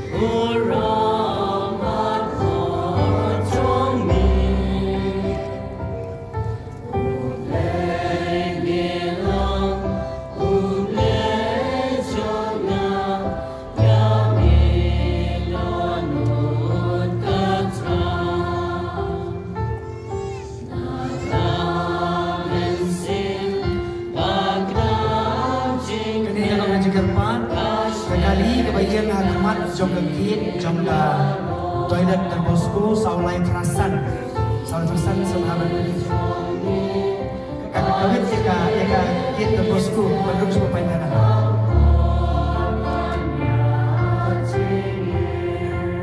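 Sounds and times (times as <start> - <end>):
choir singing a hymn: 0.0 - 46.0.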